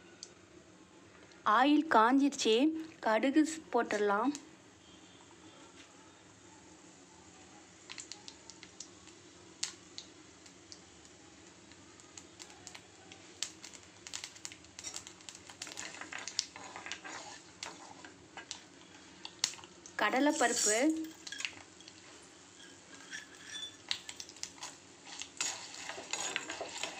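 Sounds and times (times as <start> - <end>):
seeds popping in hot oil: 7.8 - 26.9.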